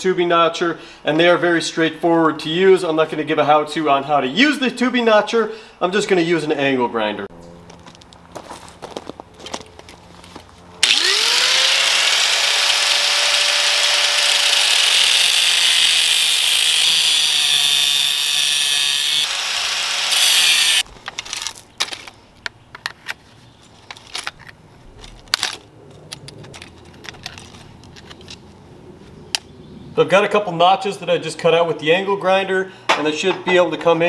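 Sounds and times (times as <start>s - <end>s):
angle grinder cutting steel: 10.8s - 20.9s.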